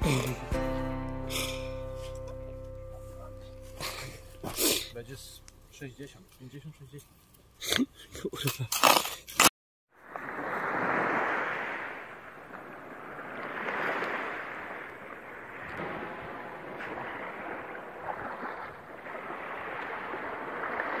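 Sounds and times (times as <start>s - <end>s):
surf washing onto sandy beach: 10.0s - 21.0s.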